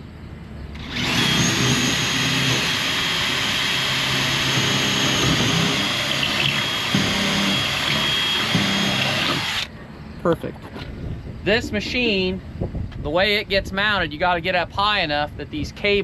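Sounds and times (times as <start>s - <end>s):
power drill boring into wood: 0.8s - 9.7s.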